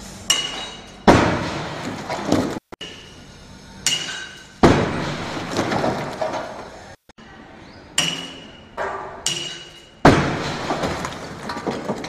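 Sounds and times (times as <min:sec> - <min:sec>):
stones and debris clattering: 0:04.8 - 0:06.7, 0:10.1 - 0:12.0.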